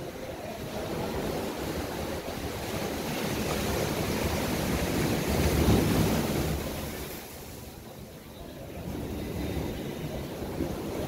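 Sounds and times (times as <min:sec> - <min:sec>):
ocean surf washing ashore: 0:00.0 - 0:11.0.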